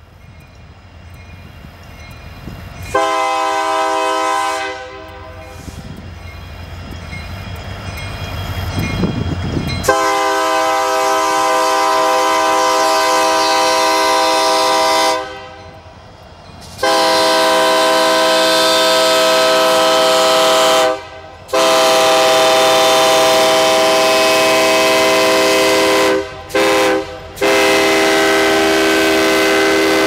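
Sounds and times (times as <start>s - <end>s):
train rolling: 0.0s - 30.0s
locomotive air horn blasts: 2.9s - 5.8s, 9.8s - 15.7s, 16.8s - 30.0s.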